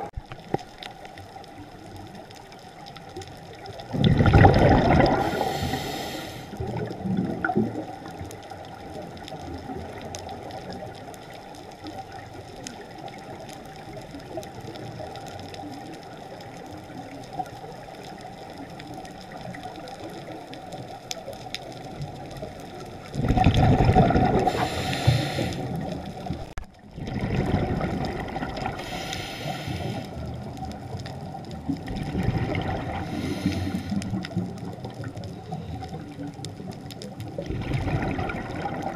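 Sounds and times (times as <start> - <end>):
faint clicks: 0.2 - 3.9, 6.4 - 26.8, 28.0 - 38.9
diver exhaling bubbles: 3.9 - 8.1, 23.1 - 26.2, 27.0 - 30.3, 31.8 - 34.6, 37.3 - 38.9
underwater hiss: 4.2 - 7.6, 23.4 - 26.4, 28.1 - 30.5, 32.4 - 34.7.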